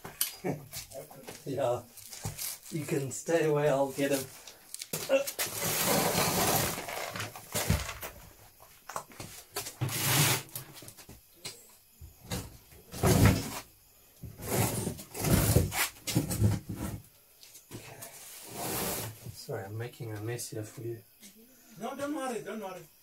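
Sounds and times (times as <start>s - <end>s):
plastic bags rustling: 4.1s - 8.0s.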